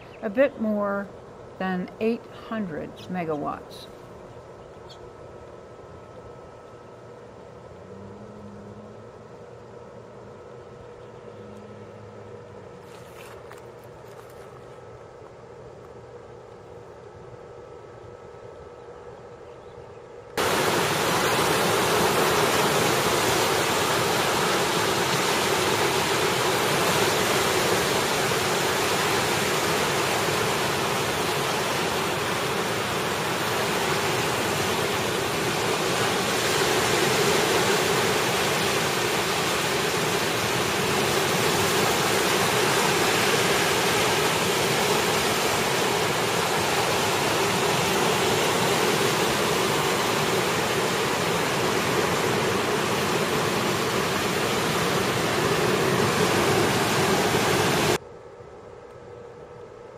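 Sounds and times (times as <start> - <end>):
river water rushing on pebble shore: 20.4 - 58.0.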